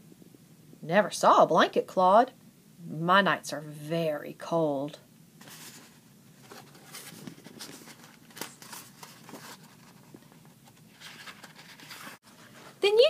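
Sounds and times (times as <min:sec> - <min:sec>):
paper page rustling and turning: 0:05.4 - 0:12.9.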